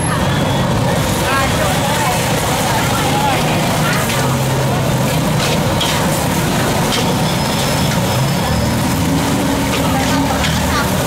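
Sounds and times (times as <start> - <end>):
loud steady roar: 0.0 - 11.0
metal ladle scraping a wok: 5.2 - 11.0.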